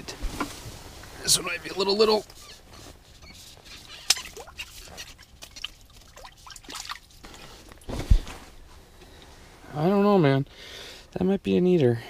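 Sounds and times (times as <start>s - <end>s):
water dripping and splashing: 4.0s - 7.4s.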